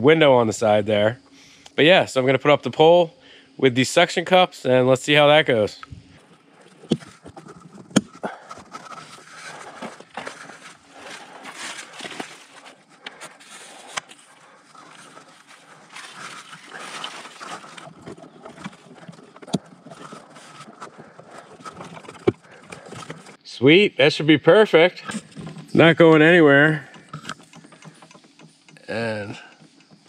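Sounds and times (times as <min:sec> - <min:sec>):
rustling and handling: 0:06.0 - 0:23.4, 0:25.0 - 0:30.0
sharp clicks and knocks: 0:06.2 - 0:23.4, 0:25.0 - 0:30.0.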